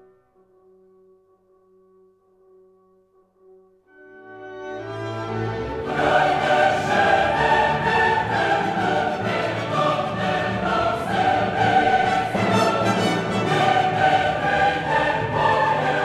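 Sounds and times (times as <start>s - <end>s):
many voices singing together: 5.8s - 16.0s.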